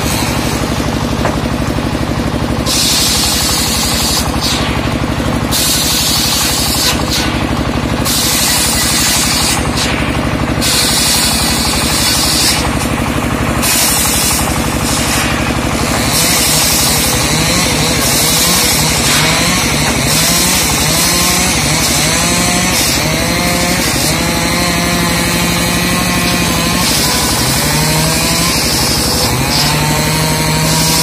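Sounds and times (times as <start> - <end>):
engine running with fast pulse: 0.0 - 31.0
saw blade rasping through wood: 0.0 - 31.0.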